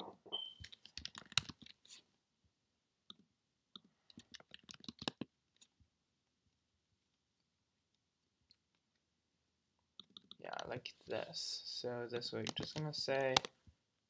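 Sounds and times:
computer keyboard typing: 0.6s - 1.8s, 3.8s - 5.3s, 10.0s - 10.4s, 12.2s - 13.5s.

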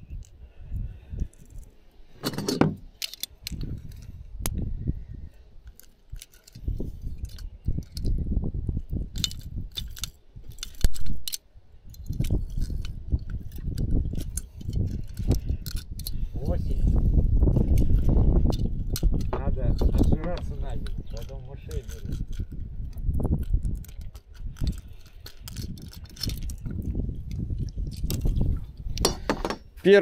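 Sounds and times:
metal tackle clinking: 2.2s - 4.1s, 28.9s - 29.8s.

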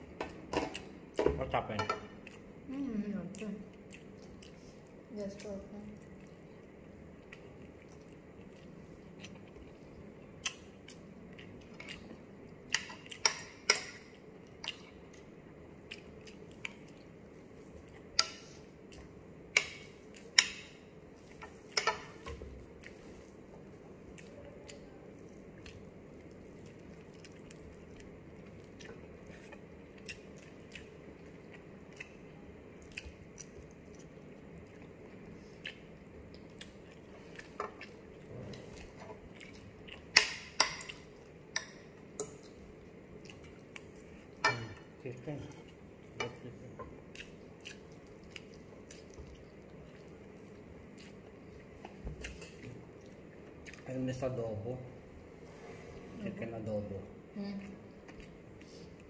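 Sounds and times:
person chewing food: 0.0s - 1.2s, 2.1s - 2.7s, 3.3s - 54.0s, 57.6s - 59.0s
cutlery clicking on a plate: 12.7s - 14.1s, 21.7s - 22.2s.

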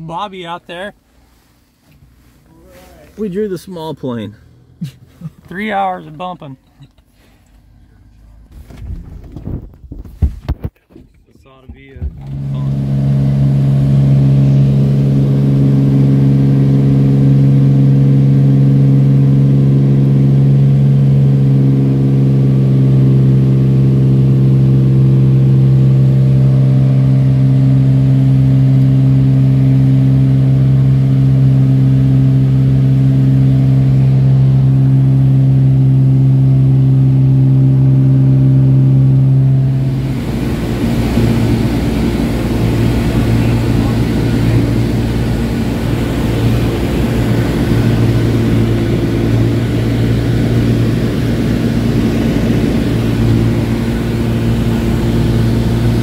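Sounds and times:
rough hissy cabin noise: 0.0s - 6.9s, 38.2s - 56.0s
small plane engine drone in cabin: 12.0s - 56.0s.

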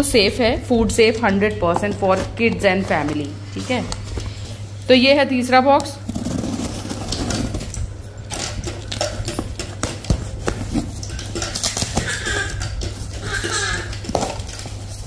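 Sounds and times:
cardboard and tape tearing: 6.1s - 7.8s.

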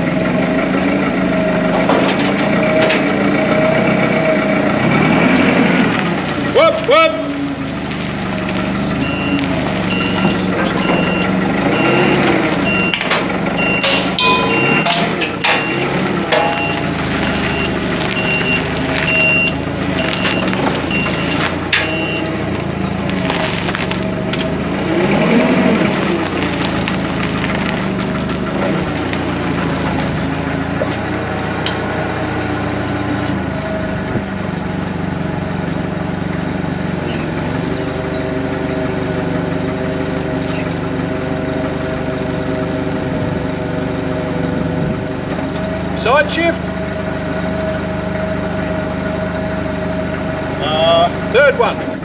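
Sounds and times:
forklift engine running: 0.0s - 52.0s
reversing beeper beeps: 9.0s - 22.4s.

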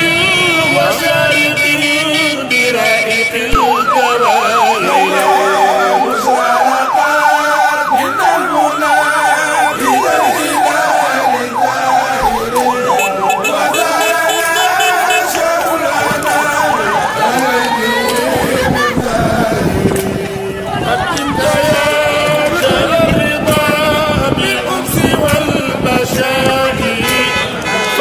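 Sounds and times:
crowd voices: 0.0s - 28.0s
electronic siren yelping: 2.8s - 18.0s.

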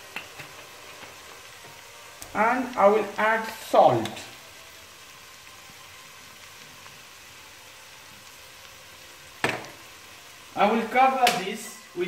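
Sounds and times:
water heating hiss: 0.0s - 12.0s.

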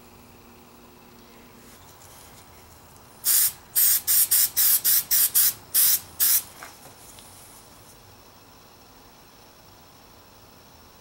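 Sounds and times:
aerosol spray bursts: 3.2s - 6.5s.

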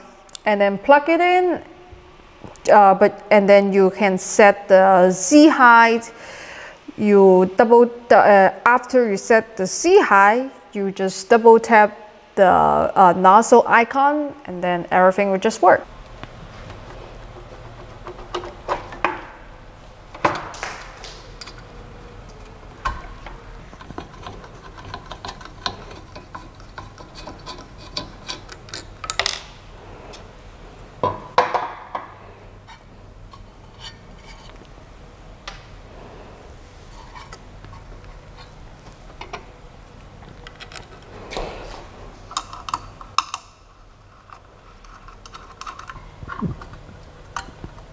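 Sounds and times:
clicks and rattles of parts: 20.1s - 30.2s, 40.2s - 41.1s, 42.3s - 47.9s.

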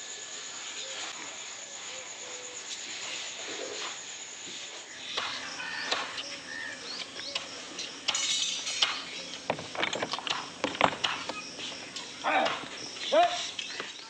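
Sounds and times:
bird chirps: 4.9s - 14.0s.

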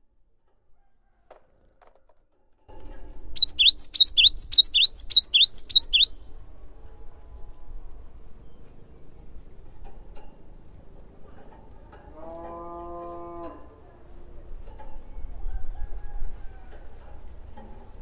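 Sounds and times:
tit singing whistled notes: 3.4s - 6.1s.

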